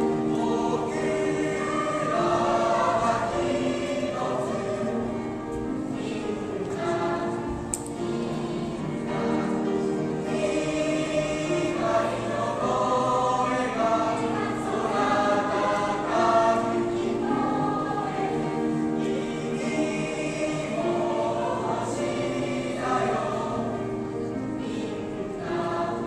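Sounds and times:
mixed choir singing in parts: 0:00.0 - 0:26.0.

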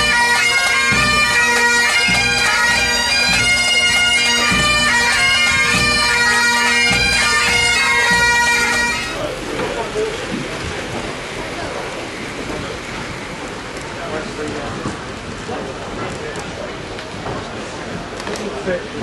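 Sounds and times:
bagpipes playing melody: 0:00.0 - 0:09.3
bass drum beating: 0:00.9 - 0:08.8.

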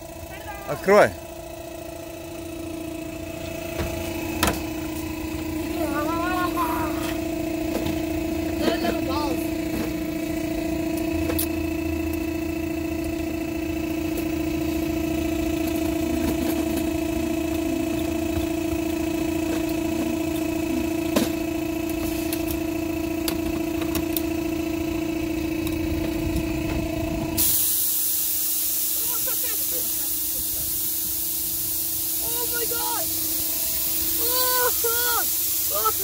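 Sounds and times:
air compressor humming: 0:00.0 - 0:36.0
compressed air hissing into sand: 0:27.4 - 0:36.0.

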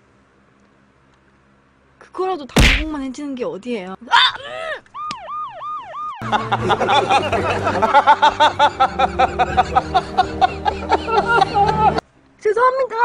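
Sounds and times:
siren-like wailing whoops: 0:04.9 - 0:06.2
men laughing heartily: 0:06.2 - 0:12.0.

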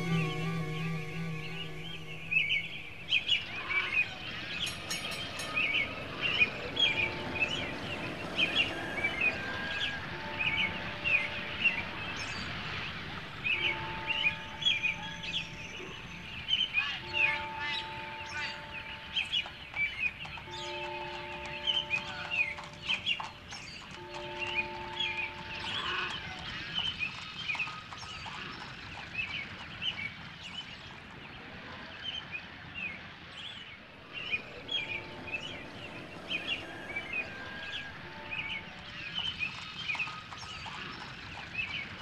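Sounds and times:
longer held bird tones: 0:00.0 - 0:22.6, 0:31.9 - 0:40.7
small birds chirping: 0:00.0 - 0:42.0.

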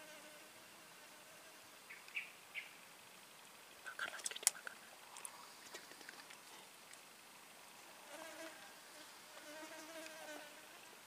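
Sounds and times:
insect wings buzzing: 0:08.0 - 0:11.0.

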